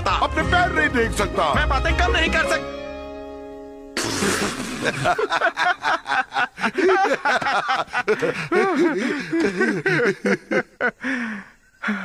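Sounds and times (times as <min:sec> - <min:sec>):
person laughing: 0:04.0 - 0:11.0.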